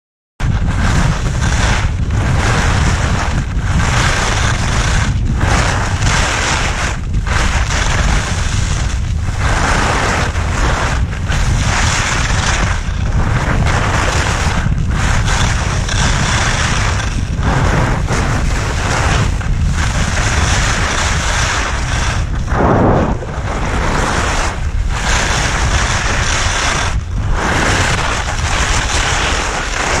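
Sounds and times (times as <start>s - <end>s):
skis carving snow: 0.4s - 30.0s
wind buffeting microphone: 0.4s - 30.0s.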